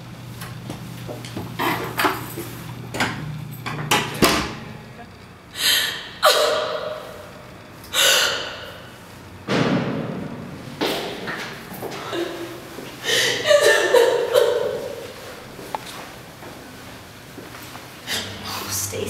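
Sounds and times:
woman sobbing: 12.0s - 15.0s.

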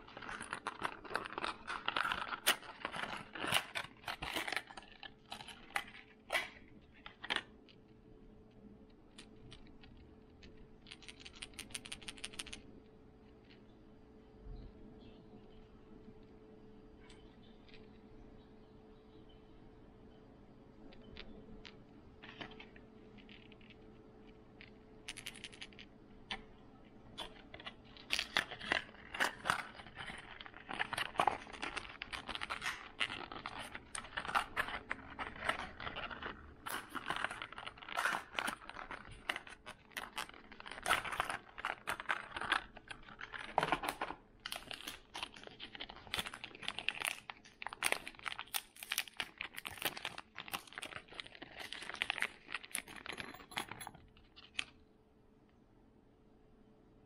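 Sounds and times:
packaging crinkling: 0.0s - 7.8s, 21.1s - 54.8s.

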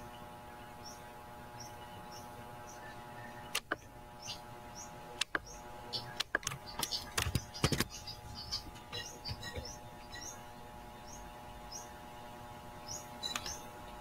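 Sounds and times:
steady electrical hum: 0.0s - 14.0s
high bird chirps: 4.2s - 12.0s
mouse and keyboard clicks: 6.2s - 7.9s.

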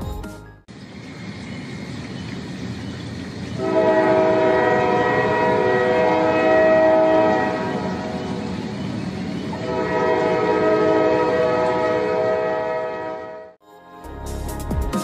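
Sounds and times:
train rumbling: 0.1s - 13.6s
steam locomotive chime whistle: 3.6s - 13.6s.

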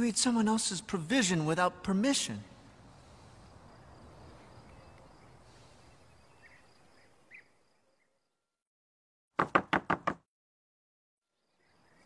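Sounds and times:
bird chirps: 3.9s - 8.3s
knocks on wooden gate: 9.4s - 10.3s.

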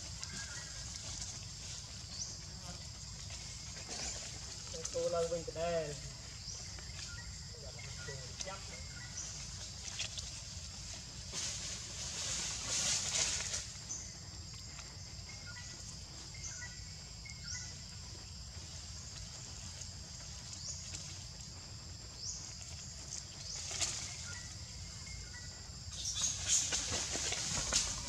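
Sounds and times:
rustling and crackling: 7.8s - 15.0s, 18.6s - 24.6s, 25.9s - 28.0s.

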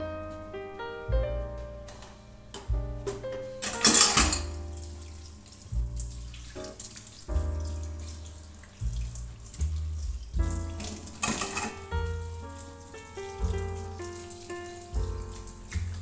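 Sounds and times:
background music: 0.0s - 16.0s
tap water running into sink: 3.1s - 16.0s.

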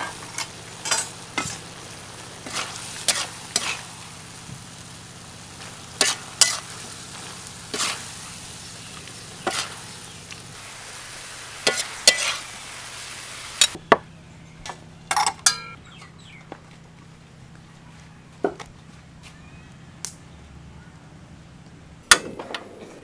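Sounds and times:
metal spatula scraping a pan: 0.0s - 1.6s, 2.4s - 3.8s, 6.0s - 6.7s, 7.7s - 8.0s, 11.6s - 12.4s
food sizzling in a wok: 0.0s - 13.8s
sharp metal clinks: 15.1s - 15.8s.

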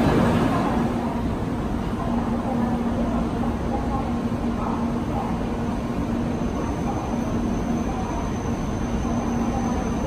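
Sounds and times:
train rumbling: 0.0s - 10.0s.

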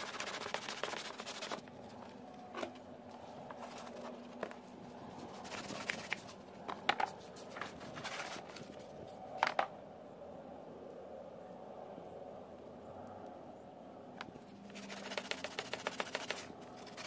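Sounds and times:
sandpaper rubbing fibreglass: 0.0s - 1.6s, 5.2s - 6.3s, 14.6s - 17.0s.

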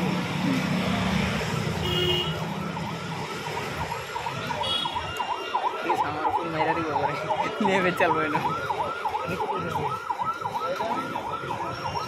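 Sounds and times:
electronic siren yelping: 2.4s - 12.0s.

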